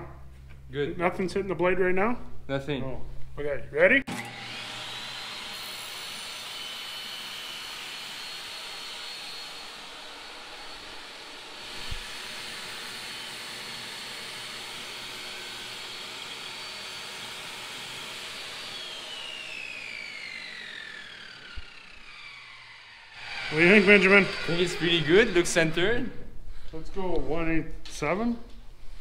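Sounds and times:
saw blade winding down: 0:04.1 - 0:26.1
table saw whine: 0:04.1 - 0:26.3.

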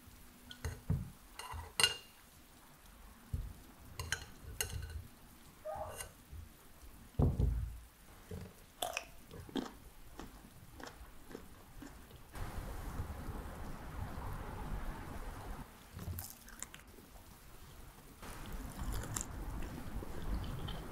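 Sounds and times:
crisp bites and chewing: 0:18.3 - 0:19.7.

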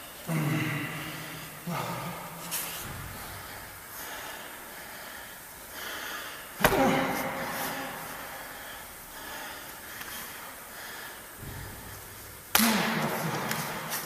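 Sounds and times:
breathing: 0:03.0 - 0:06.6, 0:07.6 - 0:12.2
sharp smack: 0:12.5 - 0:13.8.

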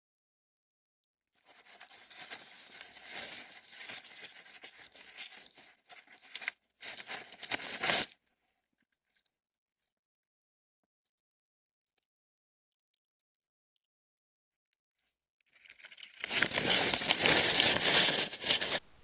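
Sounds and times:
newspaper crinkling and rustling: 0:01.4 - 0:08.2, 0:15.6 - 0:18.9.

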